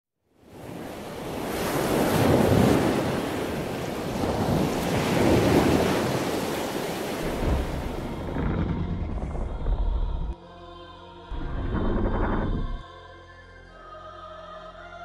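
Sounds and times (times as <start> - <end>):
ocean waves surging: 0.5 - 8.8.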